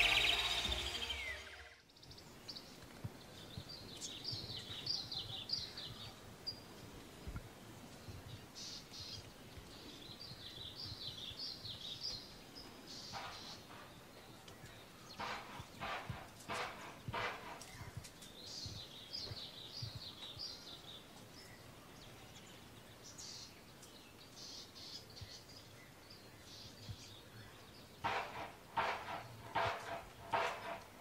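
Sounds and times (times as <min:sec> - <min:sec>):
birds chirping: 0:00.0 - 0:07.1, 0:07.7 - 0:31.0
faint outdoor background noise: 0:00.0 - 0:31.0.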